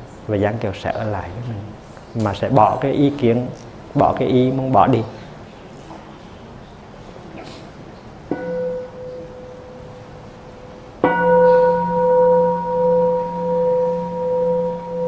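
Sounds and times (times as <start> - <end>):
bowl bell ringing: 8.3 - 15.0.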